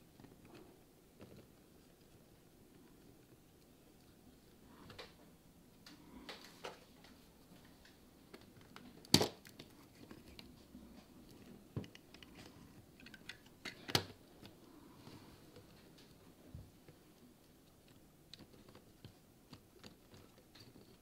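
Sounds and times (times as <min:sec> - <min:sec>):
plastic parts clicking and knocking: 0:07.8 - 0:10.6, 0:11.2 - 0:14.6, 0:16.8 - 0:21.0.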